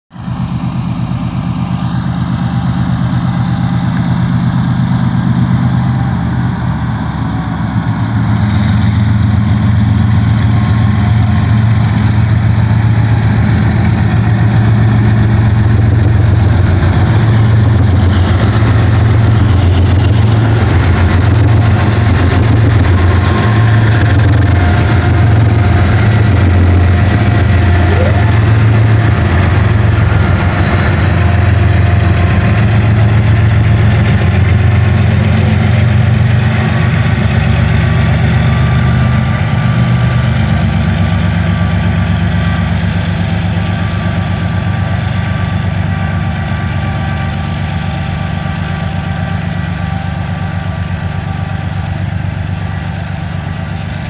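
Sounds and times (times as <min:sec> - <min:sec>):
locomotive engine drone: 0:00.1 - 0:54.0.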